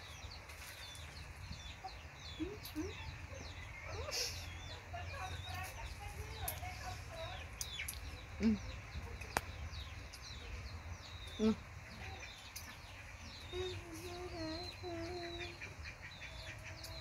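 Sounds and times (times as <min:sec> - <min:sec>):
chickens clucking: 0:11.2 - 0:17.0.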